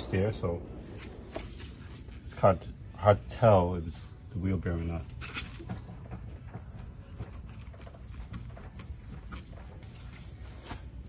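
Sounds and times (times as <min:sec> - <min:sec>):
insects chirring: 0:00.0 - 0:11.0.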